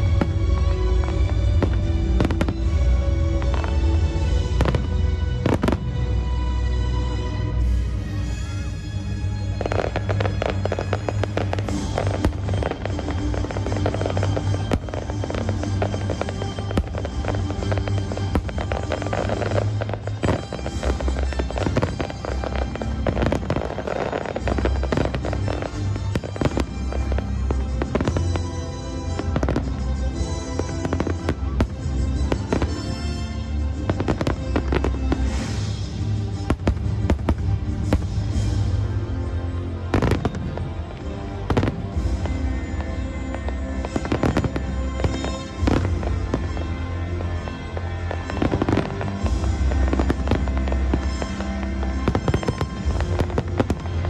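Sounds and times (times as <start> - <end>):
fireworks bangs and crackles: 0.0 - 54.0
music with low bass: 0.0 - 54.0.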